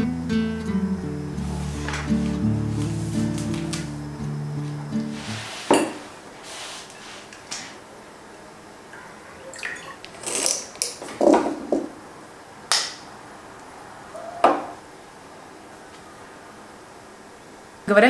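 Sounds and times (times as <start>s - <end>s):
glass bottle set down: 5.7s - 6.0s.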